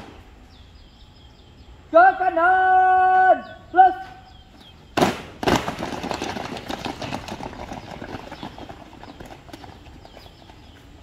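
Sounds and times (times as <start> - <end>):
boots stamping on asphalt: 4.5 - 11.0
marching footfalls on asphalt: 4.5 - 11.0.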